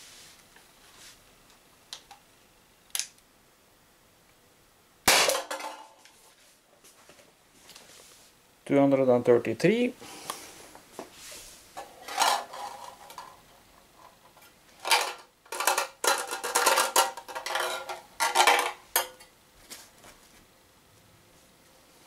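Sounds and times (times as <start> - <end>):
tin can rattling: 14.8 - 19.2.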